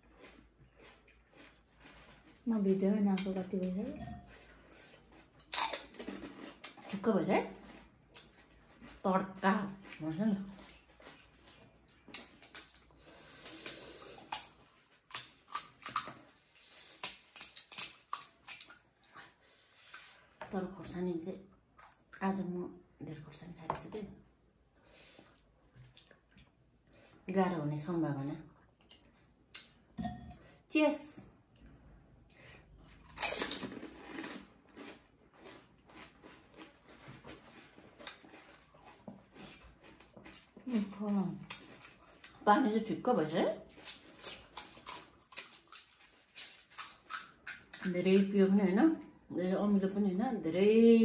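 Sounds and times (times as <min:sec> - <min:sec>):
chewing crunchy food: 0:00.0 - 0:20.4, 0:25.1 - 0:26.9, 0:31.5 - 0:42.4, 0:43.5 - 0:48.4
crunchy shells cracking: 0:33.1 - 0:37.0.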